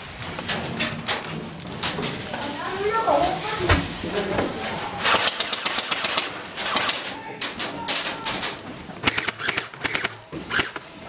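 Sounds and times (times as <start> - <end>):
airsoft guns firing: 5.0 - 11.0.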